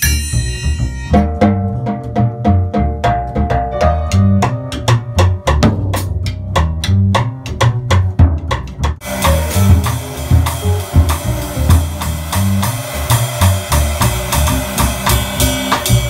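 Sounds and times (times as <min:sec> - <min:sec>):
cymbal ringing: 0:00.0 - 0:01.3
bass playing low notes: 0:00.0 - 0:16.0
jazz drum kit: 0:00.0 - 0:16.0.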